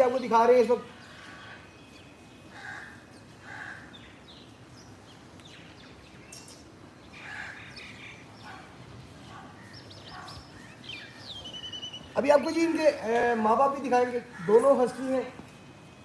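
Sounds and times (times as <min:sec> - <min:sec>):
faint high bird chirps: 0:09.6 - 0:12.2.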